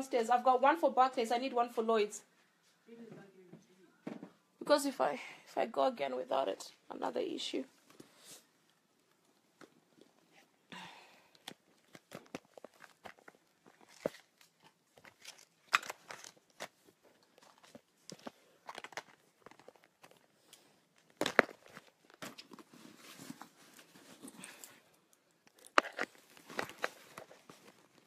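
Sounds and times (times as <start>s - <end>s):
rustling: 11.4s - 28.0s.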